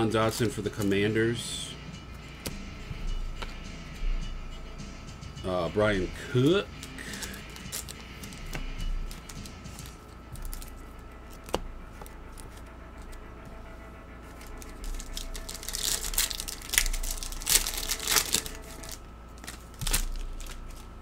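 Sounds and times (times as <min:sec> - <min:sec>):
wrapper tearing and crinkling: 0:06.8 - 0:08.3, 0:14.4 - 0:20.9.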